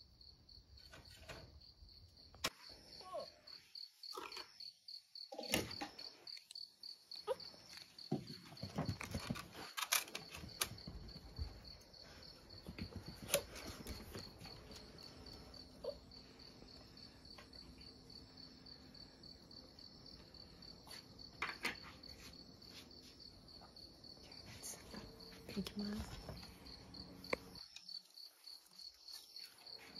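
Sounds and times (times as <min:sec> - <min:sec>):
crickets chirping: 0:00.0 - 0:29.9.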